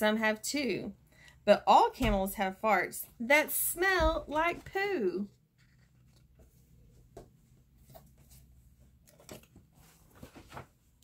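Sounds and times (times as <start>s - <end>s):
book rustling and tapping: 5.6s - 10.8s.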